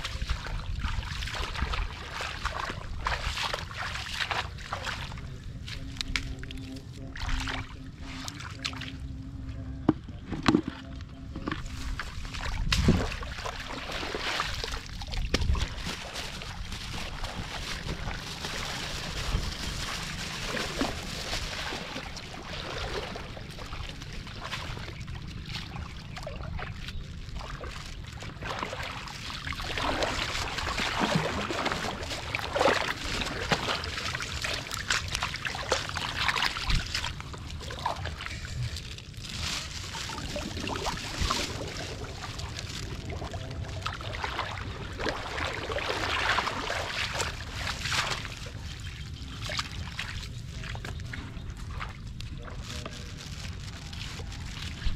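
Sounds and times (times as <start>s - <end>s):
muddy water splashing: 0.0s - 54.9s.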